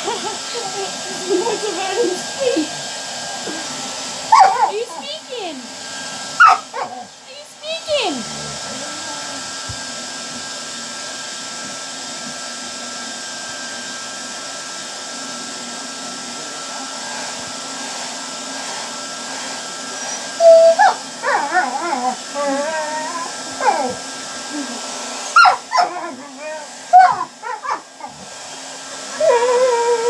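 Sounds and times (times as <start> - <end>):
hair dryer running: 0.0 - 30.0
puppy whining and yelping: 4.3 - 5.0, 6.4 - 7.1, 19.9 - 24.0, 25.3 - 28.3, 29.0 - 30.0.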